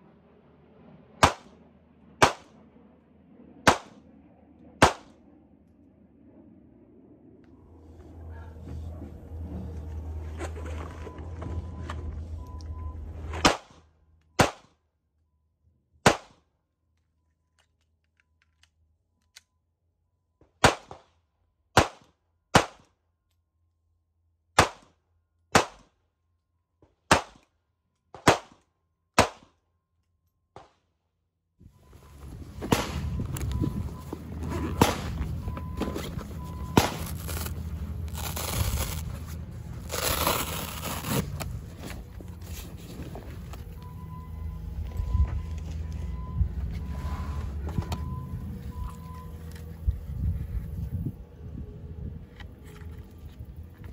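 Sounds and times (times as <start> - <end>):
pistol shots: 1.2 - 1.5, 2.2 - 2.5, 3.6 - 4.0, 4.8 - 5.1, 25.5 - 25.9, 27.1 - 27.4, 28.2 - 28.6, 29.2 - 29.5, 32.7 - 33.1, 34.8 - 35.2, 36.7 - 37.0.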